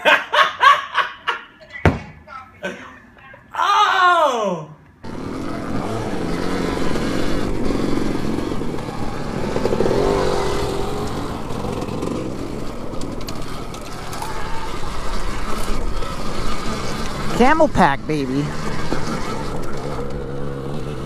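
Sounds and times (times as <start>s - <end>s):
dirt bike engine running: 5.0s - 21.0s.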